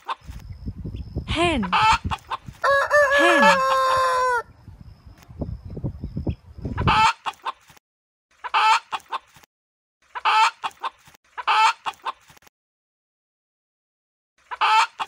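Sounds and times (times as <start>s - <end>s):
hen clucking: 0.0s - 0.3s, 1.4s - 4.4s, 6.8s - 7.7s, 8.4s - 12.4s, 14.4s - 15.0s
chicken long held call: 2.6s - 4.5s.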